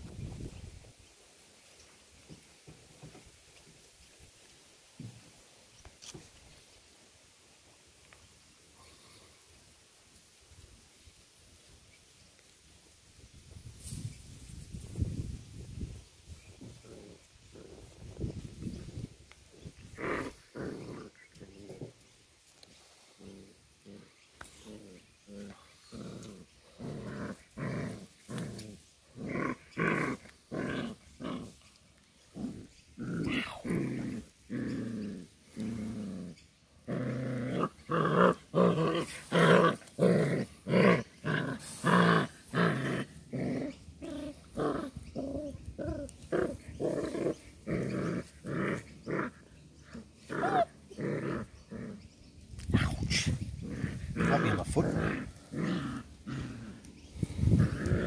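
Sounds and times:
puppies growling: 16.6s - 22.0s, 23.0s - 31.6s, 32.2s - 58.0s.

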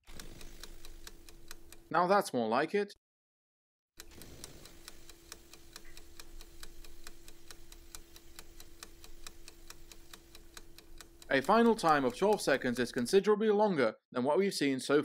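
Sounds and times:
clock ticking: 0.1s - 1.9s, 4.0s - 13.2s.

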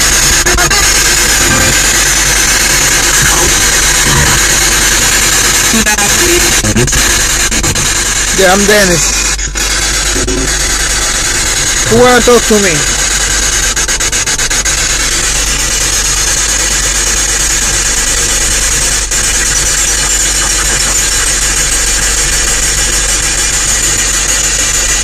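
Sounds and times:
radio static hiss: 0.0s - 25.0s
rapid ticking: 0.0s - 25.0s.

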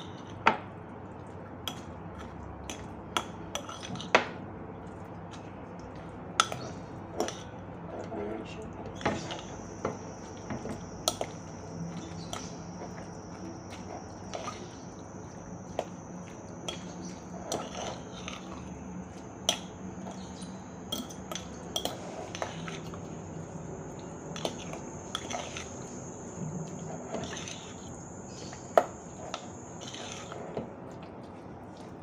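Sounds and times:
fork scraping inside a bowl: 1.7s - 4.1s, 9.0s - 23.1s, 24.3s - 26.0s, 26.6s - 30.7s.

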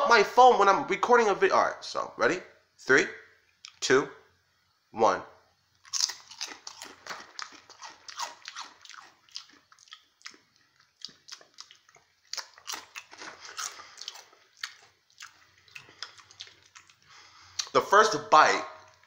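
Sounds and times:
chewing crunchy potato chip: 5.8s - 17.7s.

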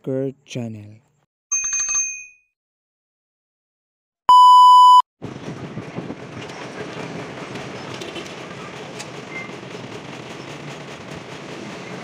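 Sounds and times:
loud pure beep: 4.3s - 5.0s
outdoor background noise: 5.2s - 12.0s.

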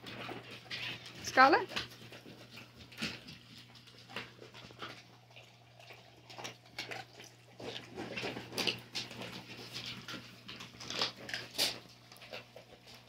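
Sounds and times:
dogs sniffing and scuffling: 0.0s - 13.0s.

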